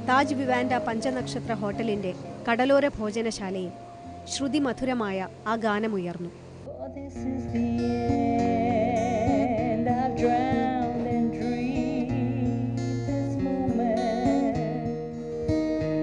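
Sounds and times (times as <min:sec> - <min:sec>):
woman singing: 0:00.0 - 0:02.1, 0:06.7 - 0:15.1
acoustic guitar: 0:00.0 - 0:16.0.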